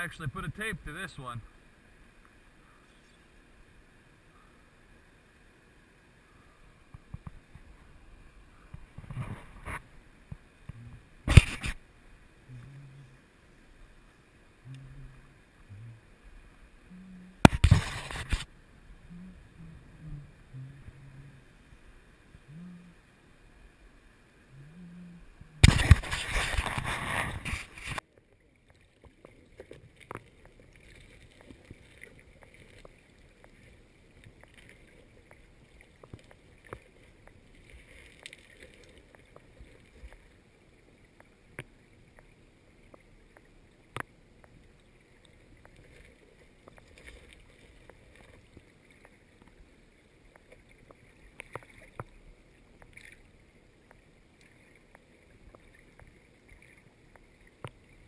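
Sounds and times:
muffled underwater sound: 0.0s - 1.5s, 6.2s - 11.8s, 12.4s - 13.3s, 14.6s - 23.2s, 24.4s - 28.0s
water splashing and rushing: 6.8s - 58.0s.

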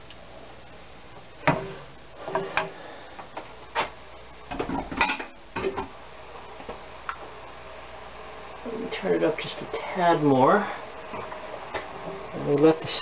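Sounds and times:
utensils clinking on cookware: 4.8s - 5.8s.

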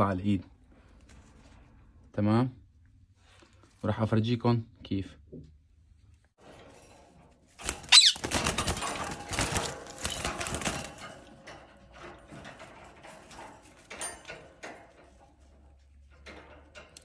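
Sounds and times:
wings flapping and rustling: 7.4s - 11.5s
parakeet screech: 7.8s - 8.4s.

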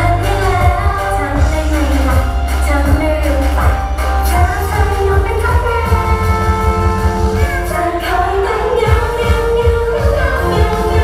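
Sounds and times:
pop song over loudspeakers: 0.0s - 11.0s
women singing: 0.0s - 11.0s
kick drum beat: 8.9s - 11.0s.

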